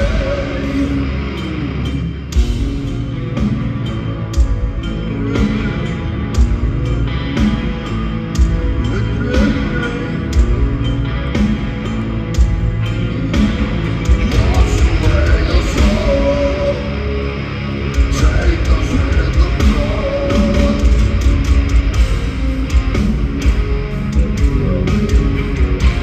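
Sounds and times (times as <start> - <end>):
bass guitar: 0.0 - 26.0
distorted electric guitar: 0.0 - 26.0
pounding drums: 2.4 - 16.7.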